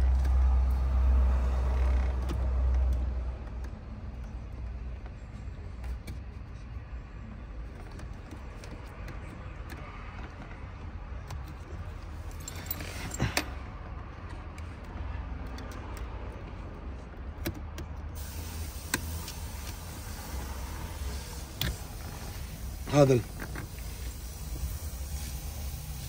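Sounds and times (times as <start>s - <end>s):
clicks and clinks of parts: 7.7s - 16.1s.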